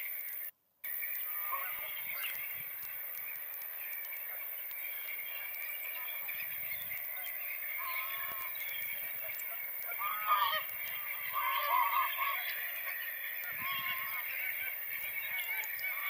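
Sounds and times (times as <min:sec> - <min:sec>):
flock of geese honking: 0:00.0 - 0:16.0
nearer goose honks: 0:01.3 - 0:02.4, 0:09.2 - 0:16.0.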